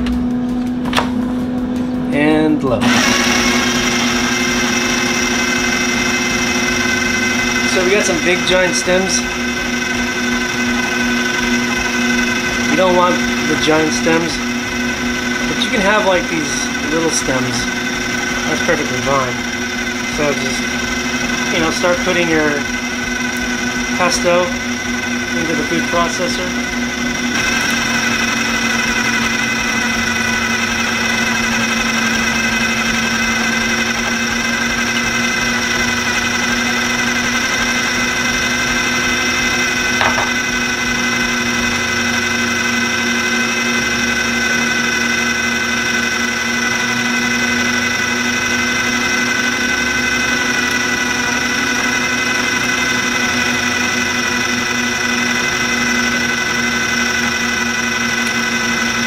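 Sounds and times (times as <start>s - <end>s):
food processor motor whining: 2.7s - 59.0s.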